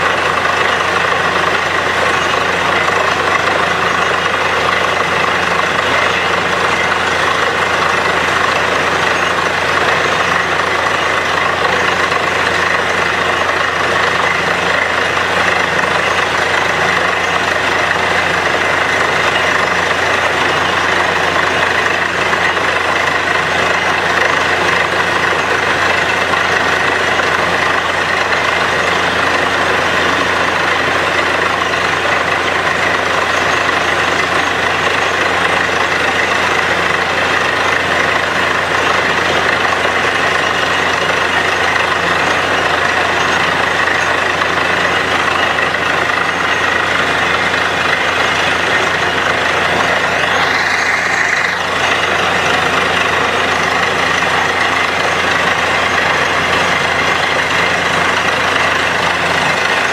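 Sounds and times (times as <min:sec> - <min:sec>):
drilling rig engine and compressor: 0:00.0 - 0:59.9.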